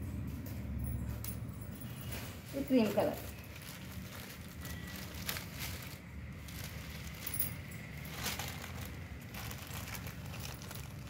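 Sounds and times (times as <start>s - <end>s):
fabric rustling: 1.8s - 11.0s.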